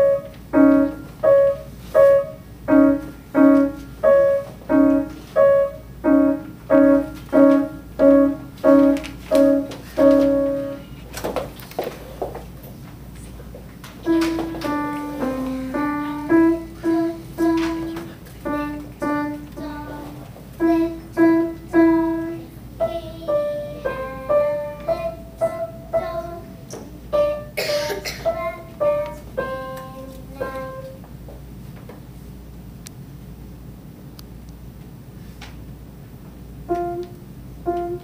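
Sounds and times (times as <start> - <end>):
simple piano melody: 0.0 - 11.0, 14.0 - 31.0, 36.6 - 38.0.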